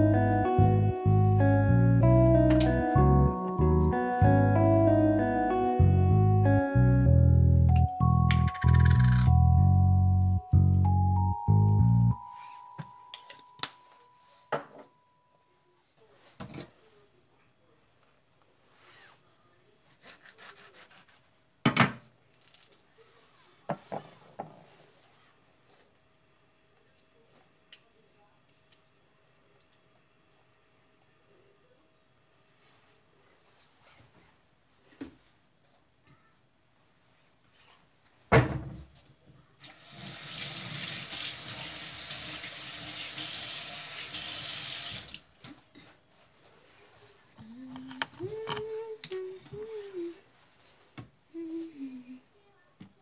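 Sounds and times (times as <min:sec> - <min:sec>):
bread knife sawing lemon: 0:19.9 - 0:21.2.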